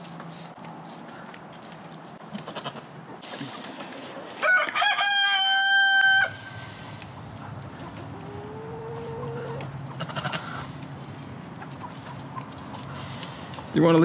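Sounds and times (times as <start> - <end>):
rooster crowing: 4.4 - 6.6.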